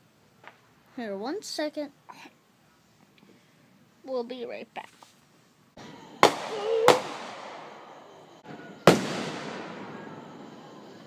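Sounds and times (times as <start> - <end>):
fireworks bangs with echoing rumble: 6.1 - 10.9.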